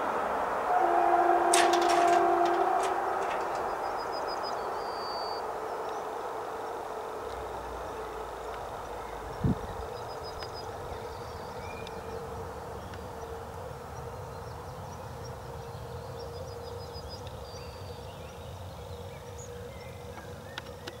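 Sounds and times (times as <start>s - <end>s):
distant train rumble: 0.0s - 20.9s
faint bird chirps: 3.2s - 6.8s.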